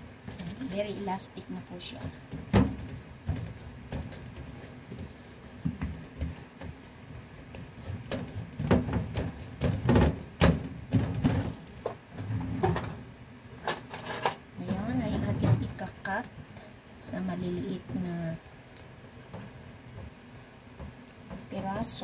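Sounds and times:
hands patting dough: 0:00.0 - 0:11.8, 0:17.6 - 0:22.0.

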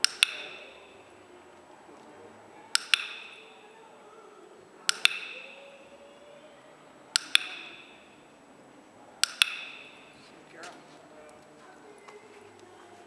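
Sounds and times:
dog-training clicker clicks: 0:00.0 - 0:00.7, 0:02.7 - 0:03.5, 0:04.9 - 0:05.6, 0:07.1 - 0:07.9, 0:09.2 - 0:10.0.

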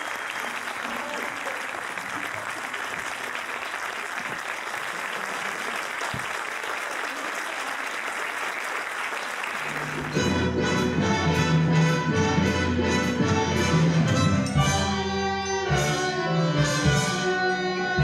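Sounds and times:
audience applauding: 0:00.0 - 0:10.5
orchestra playing sustained chords: 0:10.0 - 0:18.0.

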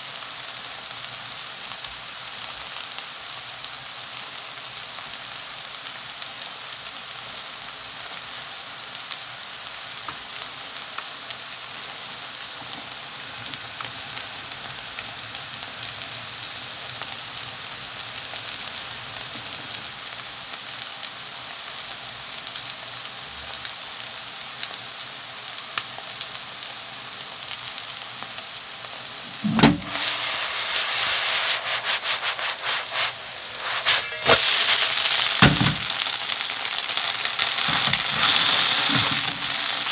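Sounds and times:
batter sizzling in oil: 0:00.0 - 0:39.9
sudden knock: 0:29.5 - 0:30.0, 0:35.4 - 0:35.9.

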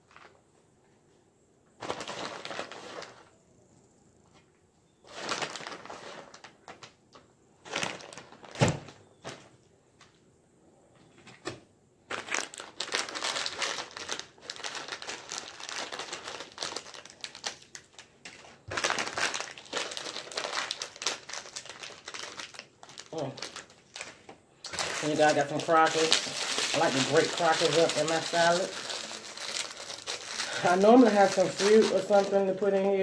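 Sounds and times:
crackers being crushed: 0:01.8 - 0:03.3, 0:05.1 - 0:09.0, 0:12.1 - 0:33.0
plastic wrappers crinkling: 0:01.8 - 0:03.3, 0:05.0 - 0:09.0, 0:12.1 - 0:33.0
packet tearing open: 0:12.1 - 0:18.1, 0:18.7 - 0:32.8.

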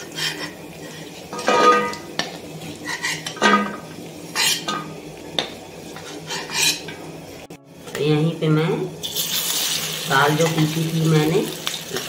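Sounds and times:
metal spatula scraping metal pan: 0:00.0 - 0:02.0, 0:02.8 - 0:05.0, 0:06.0 - 0:07.0.

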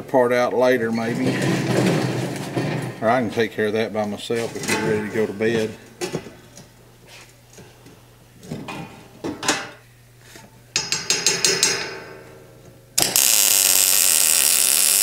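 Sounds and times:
ringing metal taps: 0:10.8 - 0:12.2
welding arc crackling: 0:13.0 - 0:15.0.

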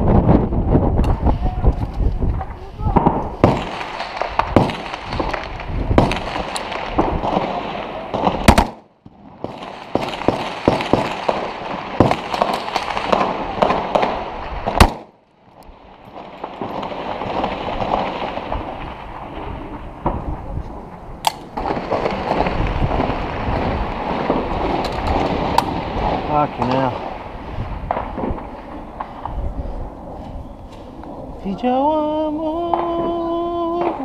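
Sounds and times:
very loud gunshots: 0:02.9 - 0:15.2
rifle shots: 0:03.0 - 0:15.2, 0:21.2 - 0:29.4.

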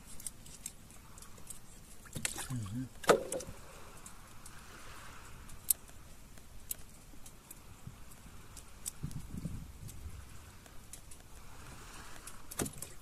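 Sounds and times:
light clicks and taps: 0:05.4 - 0:11.4.

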